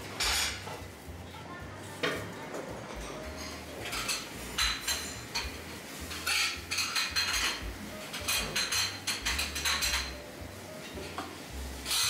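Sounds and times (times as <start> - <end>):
dishes and cutlery clinking: 0.1 - 1.0, 2.0 - 12.0.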